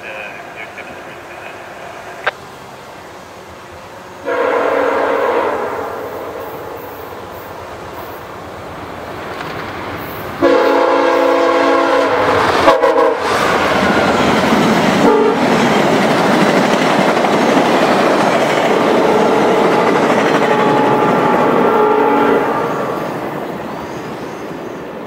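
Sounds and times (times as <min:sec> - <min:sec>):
train passing at speed: 0:00.0 - 0:25.0
locomotive horn blasts: 0:04.2 - 0:07.0, 0:10.4 - 0:13.4, 0:15.0 - 0:15.5, 0:18.9 - 0:23.0.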